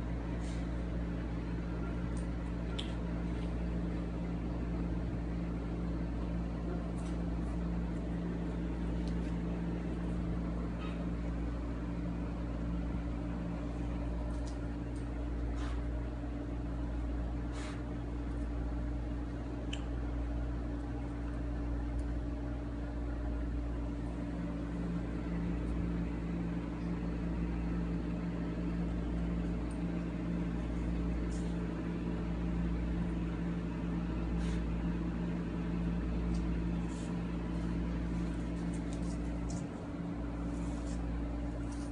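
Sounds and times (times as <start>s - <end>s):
mechanical hum: 0.0s - 41.9s.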